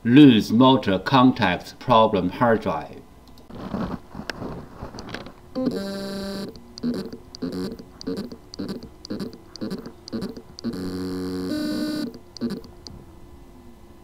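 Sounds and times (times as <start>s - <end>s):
hard drive pitched buzz: 4.8s - 14.0s
hard drive knocking: 5.0s - 12.9s.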